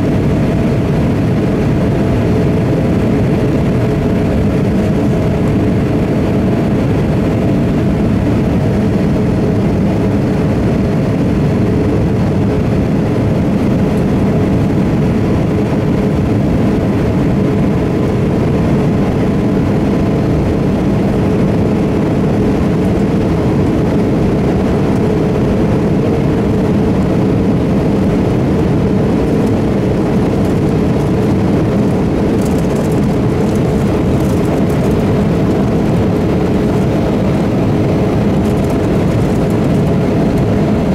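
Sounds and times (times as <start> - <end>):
airplane cabin engine drone: 0.0 - 40.9.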